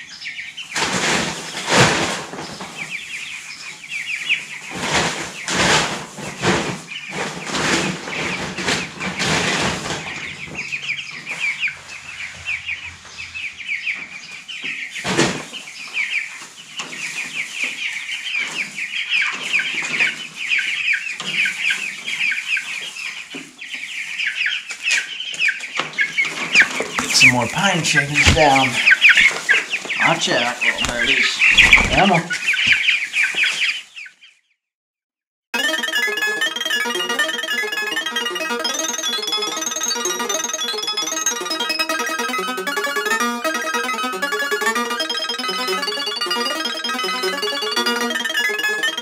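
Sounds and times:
chicks peeping: 0.0 - 34.3, 35.6 - 49.0.

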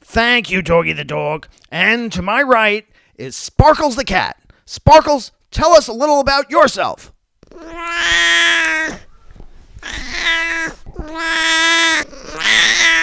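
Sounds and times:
cat meowing: 7.4 - 9.1, 9.8 - 13.0.

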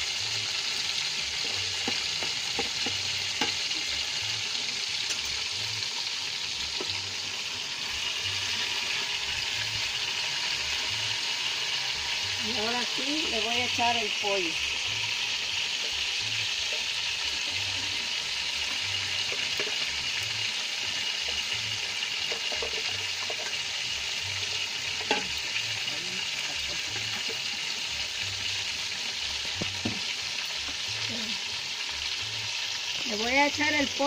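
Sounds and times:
chicken sizzling in hot oil: 0.0 - 34.0
oil popping: 20.7 - 27.6, 29.3 - 30.8.

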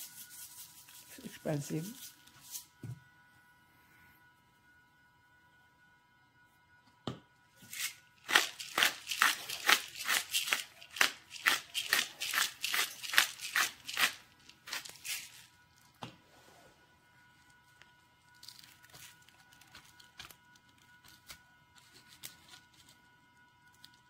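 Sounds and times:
spice shaker rattling: 7.7 - 15.5.

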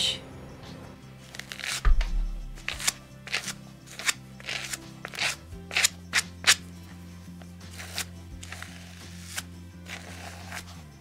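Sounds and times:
soft background music: 0.0 - 11.0
brush scratching through wool: 7.7 - 10.9.

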